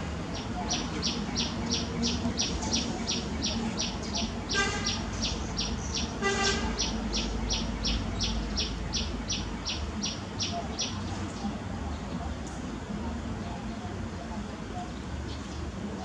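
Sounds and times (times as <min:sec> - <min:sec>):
bird chirping: 0:00.4 - 0:11.5.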